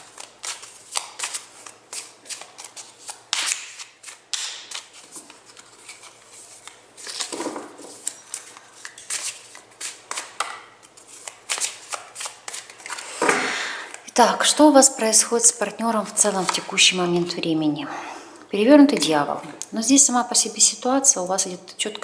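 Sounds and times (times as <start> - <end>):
cards being shuffled by hand: 0.0 - 13.3.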